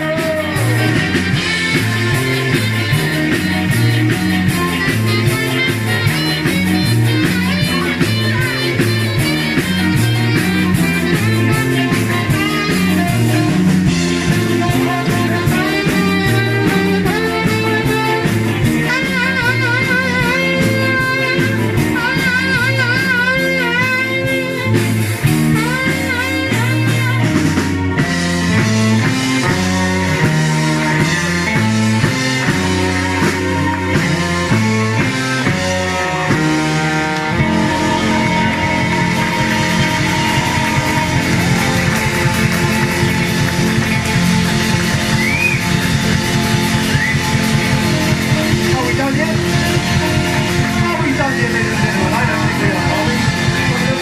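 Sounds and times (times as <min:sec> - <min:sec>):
lead melody with heavy vibrato: 0:00.0 - 0:54.0
ska band music: 0:00.0 - 0:54.0.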